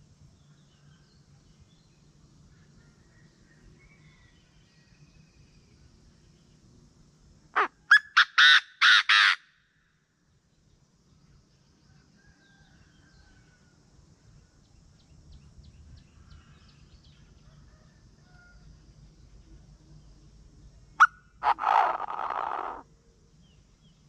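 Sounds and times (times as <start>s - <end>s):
faint small bird chirps: 0.4s - 6.6s
francolin harsh call: 7.6s - 9.6s, 21.0s - 22.9s.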